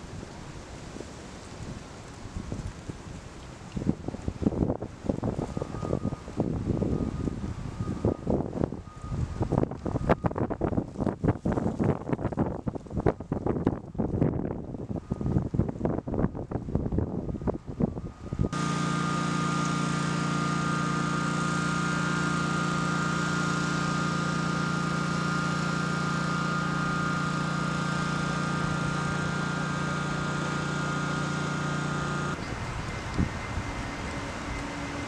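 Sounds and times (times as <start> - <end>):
machine drone with whine: 0.0 - 12.3, 17.0 - 35.0
wind buffeting microphone: 0.0 - 18.6, 32.2 - 35.0.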